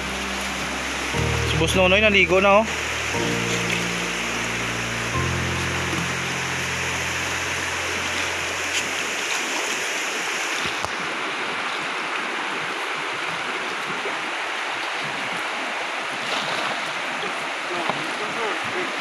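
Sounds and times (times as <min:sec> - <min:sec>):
low background music: 0:00.0 - 0:09.2
fast-flowing river rushing: 0:00.0 - 0:19.0.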